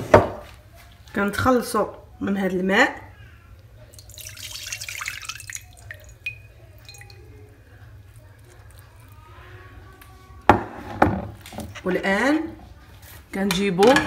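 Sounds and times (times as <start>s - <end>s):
water dripping: 3.9s - 9.2s
water pouring: 3.9s - 9.2s.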